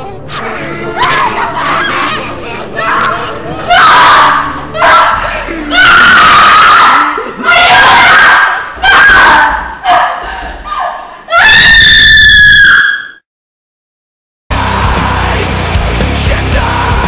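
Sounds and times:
person screaming: 0.8 - 9.3.

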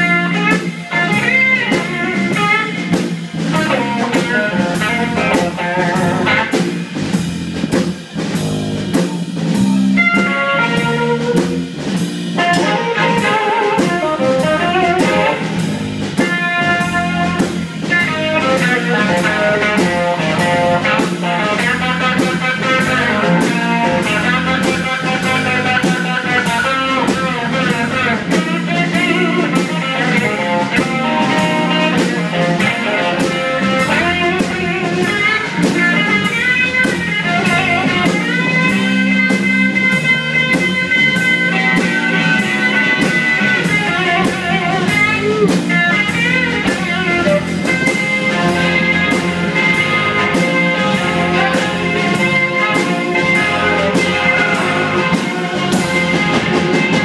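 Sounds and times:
drum kit beat: 0.0 - 57.0
electric bass: 0.0 - 57.0
electric guitar: 0.0 - 57.0
harmonica: 12.4 - 57.0.

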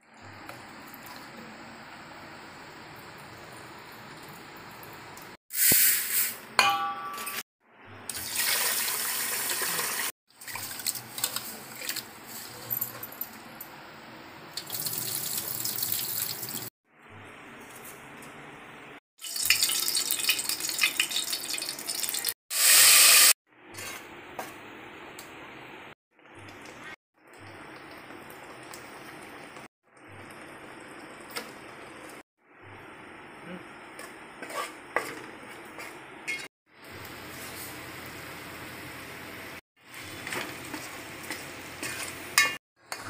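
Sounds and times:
frying in hot oil: 0.0 - 6.4, 8.0 - 12.8, 14.5 - 16.7, 19.2 - 43.0.

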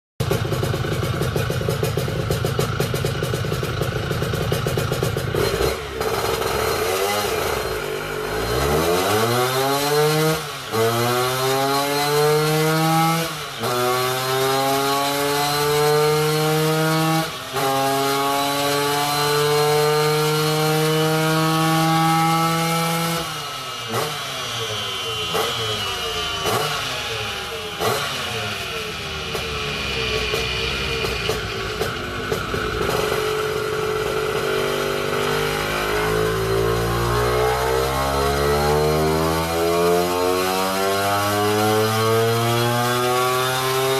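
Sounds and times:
engine popping: 0.2 - 8.2, 23.8 - 37.6
two-stroke scooter engine revving: 0.2 - 43.9.

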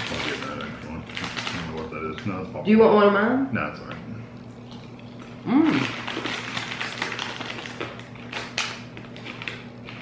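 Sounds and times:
plastic bag crackling: 0.0 - 2.5, 5.5 - 10.0
popcorn being chewed: 0.0 - 2.6, 3.8 - 10.0.

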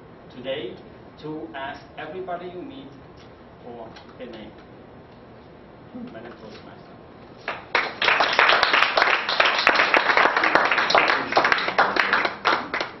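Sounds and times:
audience applauding: 7.4 - 13.0.

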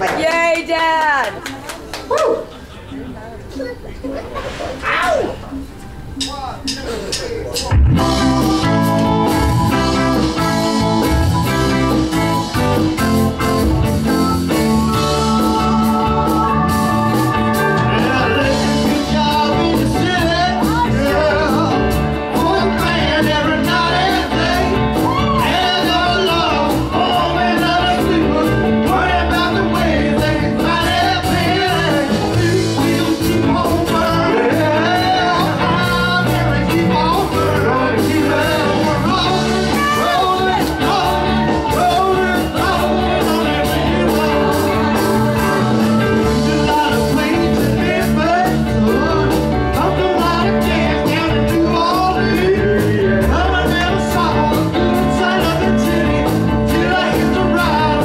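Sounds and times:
live band playing: 4.4 - 58.0
men singing into microphones: 14.8 - 58.0.

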